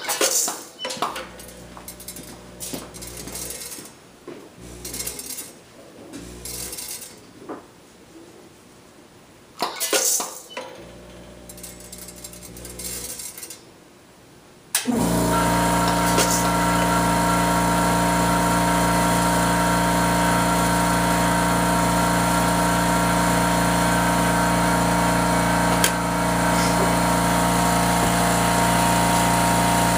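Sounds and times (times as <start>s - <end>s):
loud steady machine hum: 4.6s - 5.3s, 14.9s - 29.9s.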